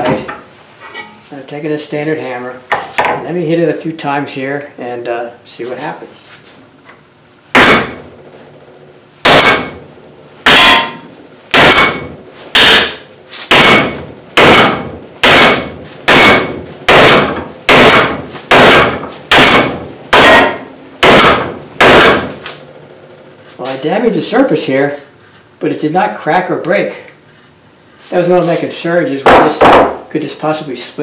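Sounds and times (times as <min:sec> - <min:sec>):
hammer striking plastic: 0:12.6 - 0:22.4.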